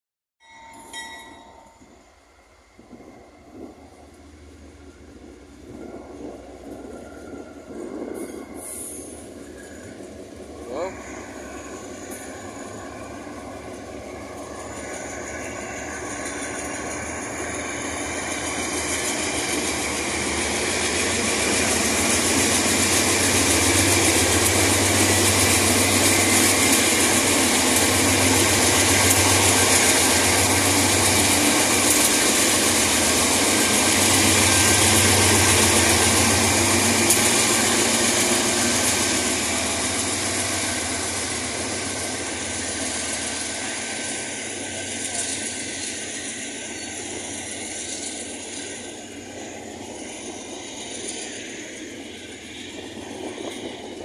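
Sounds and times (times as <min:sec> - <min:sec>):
diesel locomotive engines: 0:00.4 - 0:54.0.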